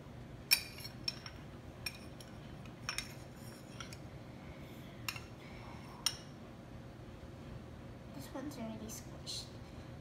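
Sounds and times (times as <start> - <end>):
metal spoon clinking on glass: 0.5 - 4.0.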